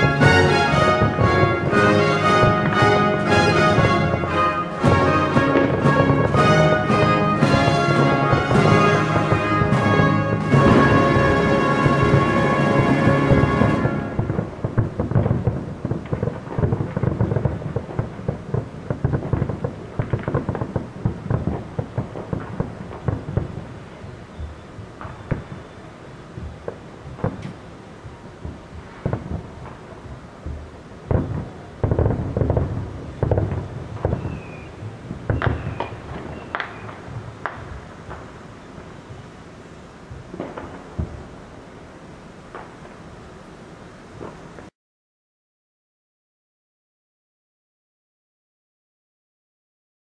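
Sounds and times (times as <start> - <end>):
rumbling echo: 0.0 - 24.0
fireworks bangs and crackles: 0.0 - 41.8, 42.4 - 43.1, 44.1 - 44.7.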